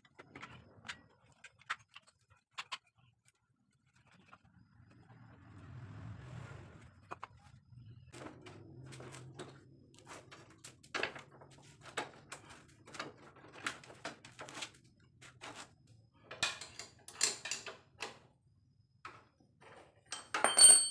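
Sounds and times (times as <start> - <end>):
tools scraping on metal parts: 16.3 - 18.2.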